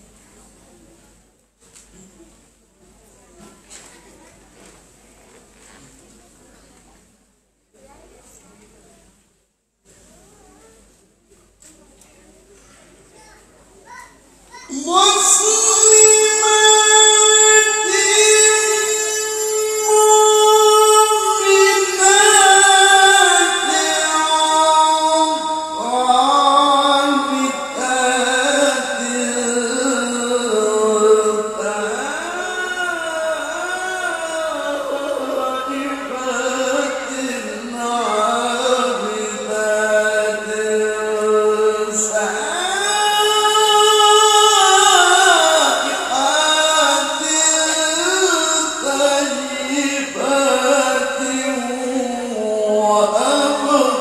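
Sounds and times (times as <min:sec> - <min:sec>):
man reciting melodically into microphone: 0:14.5 - 0:54.0.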